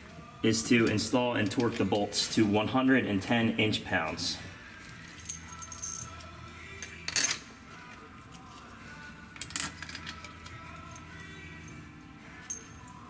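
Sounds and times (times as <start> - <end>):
metal bolts clinking: 5.0 - 6.2, 6.8 - 7.5, 9.4 - 11.8.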